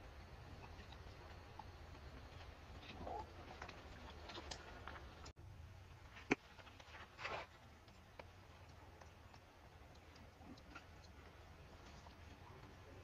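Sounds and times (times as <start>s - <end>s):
rustles: 6.0s - 9.5s.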